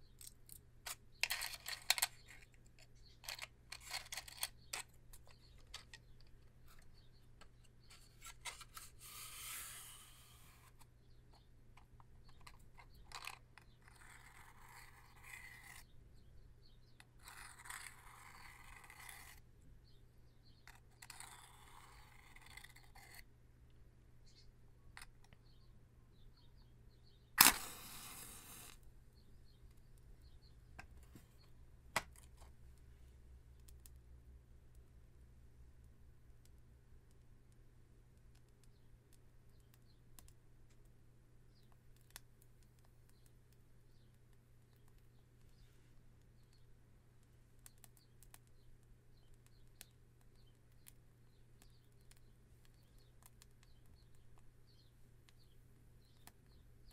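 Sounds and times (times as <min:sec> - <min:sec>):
match scraping on matchbox: 0:00.2 - 0:07.1, 0:07.8 - 0:10.9, 0:12.2 - 0:15.9, 0:17.0 - 0:19.4, 0:20.6 - 0:23.3, 0:27.4 - 0:28.8
match flaring alight: 0:27.4 - 0:28.8.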